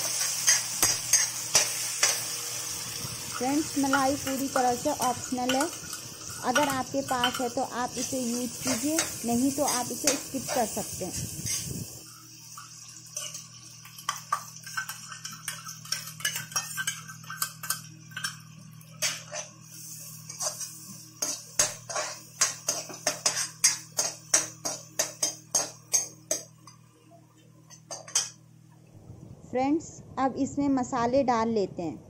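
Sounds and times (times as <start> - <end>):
spoon scraping and clinking a pan: 0.0 - 2.3, 3.8 - 7.6, 12.5 - 19.6, 20.3 - 26.8, 27.7 - 28.4
steady low hum: 0.0 - 32.0.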